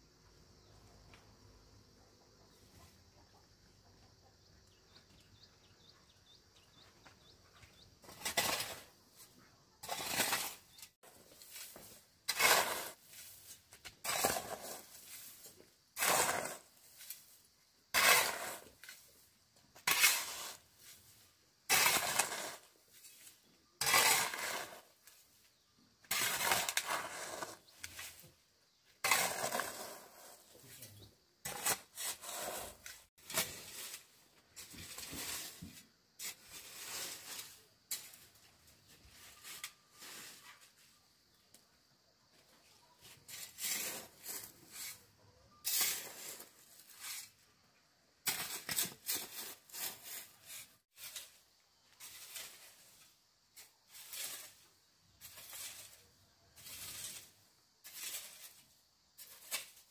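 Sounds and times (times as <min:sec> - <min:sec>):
scraping strokes: 0:08.0 - 0:19.2, 0:19.8 - 0:25.2, 0:26.0 - 0:28.3, 0:29.0 - 0:38.2, 0:38.8 - 0:40.9, 0:43.0 - 0:47.4, 0:48.2 - 0:51.4, 0:52.0 - 0:59.9.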